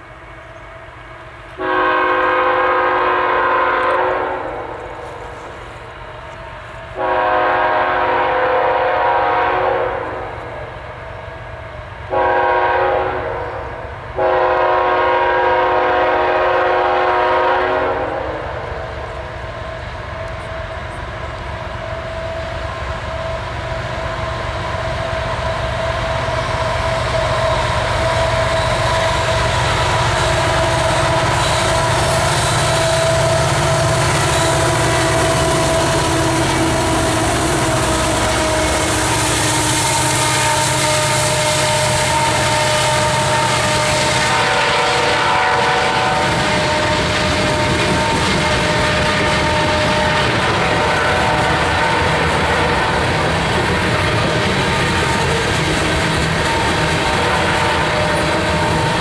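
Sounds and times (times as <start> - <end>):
diesel locomotive engines rumbling: 0.0 - 59.0
locomotive air horn blasts: 1.6 - 5.5, 6.9 - 10.7, 12.1 - 19.0, 25.5 - 53.5, 56.4 - 59.0.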